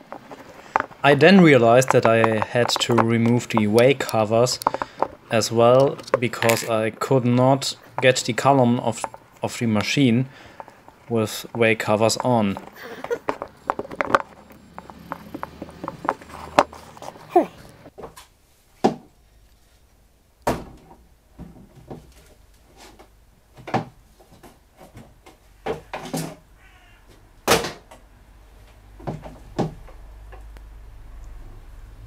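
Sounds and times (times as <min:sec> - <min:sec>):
metal parts knocking and clanking: 0:01.8 - 0:07.2.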